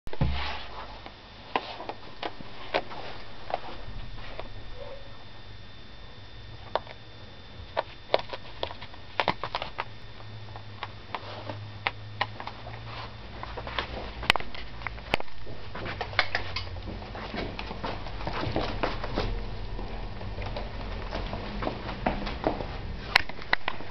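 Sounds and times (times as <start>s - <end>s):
low steady hum: 0.1s - 23.9s.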